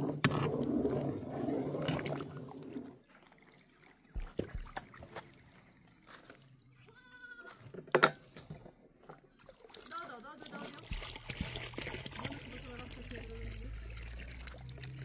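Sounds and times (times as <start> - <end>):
goat bleating: 6.8 - 7.6.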